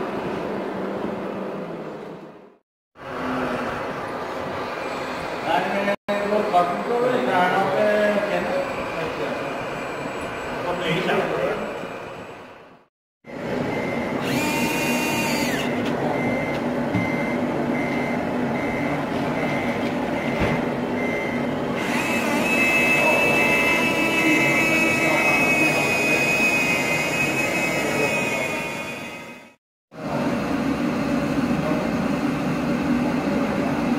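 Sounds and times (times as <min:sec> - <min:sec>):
reversing beeper: 0:13.3 - 0:29.6
steady high whine: 0:20.9 - 0:33.9.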